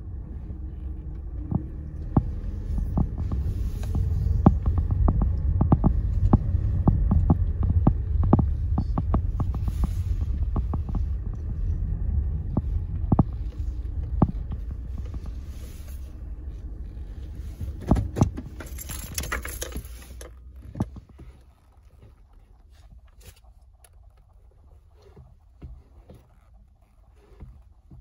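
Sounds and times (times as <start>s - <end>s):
car engine idling: 0.0s - 28.0s
shoes tapping on pedals: 0.8s - 28.0s.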